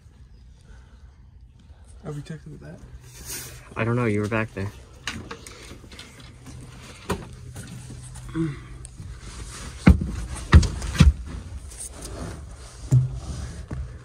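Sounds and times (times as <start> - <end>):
knocks and thumps on metal unit: 12.9 - 13.3.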